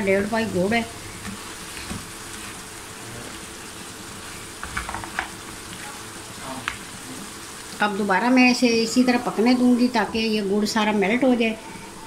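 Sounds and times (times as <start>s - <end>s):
food sizzling in a frying pan: 0.0s - 12.0s.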